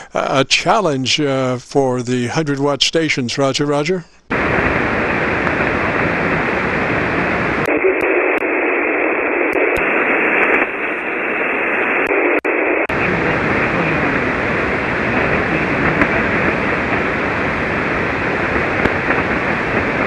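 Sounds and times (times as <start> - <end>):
shortwave receiver hiss: 2.7 - 20.0.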